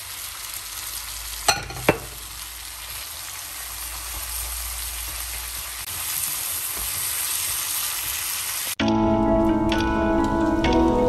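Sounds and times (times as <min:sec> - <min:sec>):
noodles sizzling in a wok: 0:00.0 - 0:08.8.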